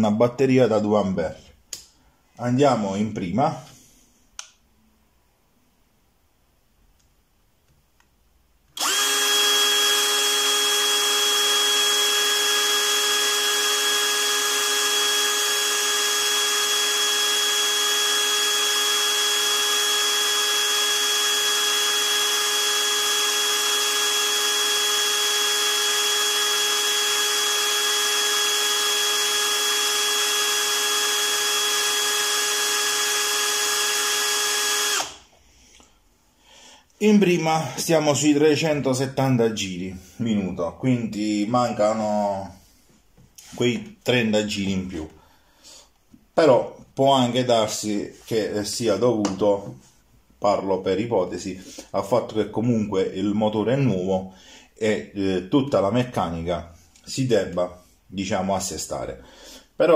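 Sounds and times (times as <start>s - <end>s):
drill whining without load: 8.7s - 35.4s.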